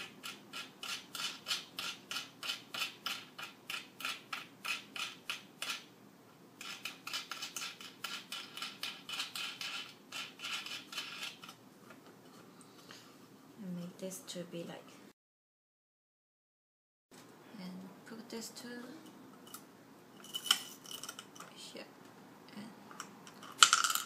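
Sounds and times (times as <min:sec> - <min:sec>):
screwdriver rasping on screw: 0:06.6 - 0:11.6.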